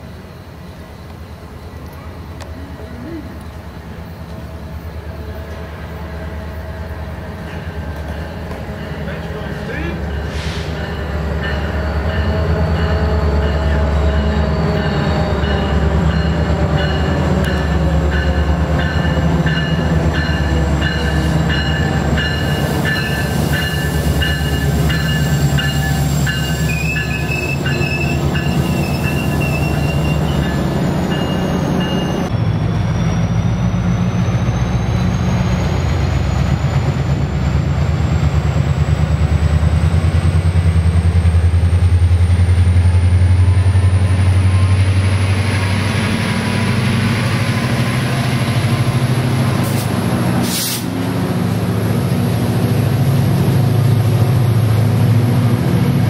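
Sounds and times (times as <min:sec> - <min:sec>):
diesel locomotive engine drone: 0:00.0 - 0:56.0
clickety-clack of rail joints: 0:07.4 - 0:10.6
wheels squealing: 0:22.5 - 0:32.3.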